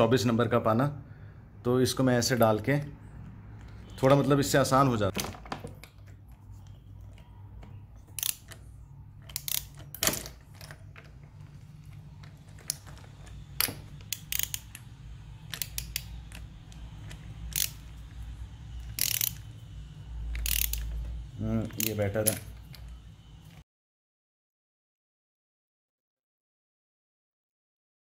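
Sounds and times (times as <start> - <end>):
metallic clicks and clinks of wrench: 8.1 - 10.8, 12.6 - 18.1, 18.8 - 19.5, 20.3 - 22.9.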